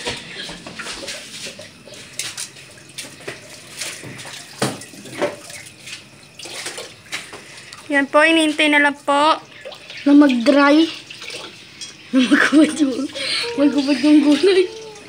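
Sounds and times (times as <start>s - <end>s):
broth bubbling in a pan: 0.0s - 15.0s.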